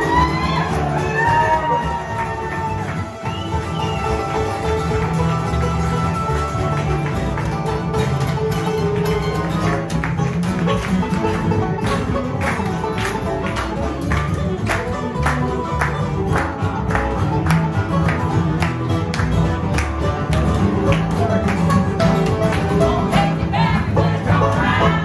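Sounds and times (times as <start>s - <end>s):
bluegrass string band playing: 0.0s - 25.0s
hand claps on the beat: 0.1s - 23.4s.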